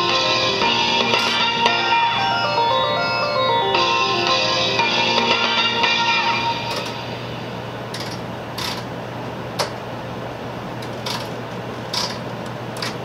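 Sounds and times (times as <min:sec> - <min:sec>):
train running noise with hum: 0:06.3 - 0:13.0.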